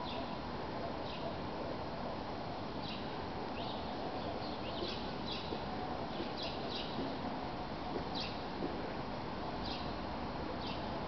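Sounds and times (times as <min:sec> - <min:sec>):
small songbirds chirping: 0:00.0 - 0:00.4, 0:01.0 - 0:01.4, 0:02.6 - 0:07.2, 0:08.1 - 0:08.5, 0:09.6 - 0:10.0, 0:10.6 - 0:11.0
steady background hiss: 0:00.0 - 0:11.0.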